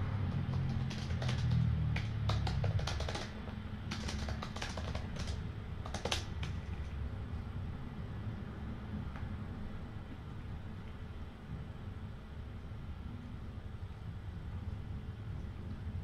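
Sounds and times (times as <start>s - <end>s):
keyboard typing clicks: 0.3s - 6.8s.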